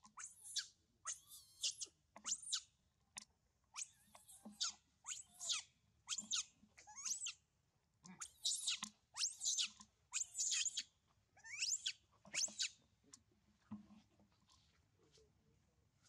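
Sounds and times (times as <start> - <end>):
baby monkey screaming: 0.2 - 2.7, 3.8 - 7.4, 8.2 - 12.8.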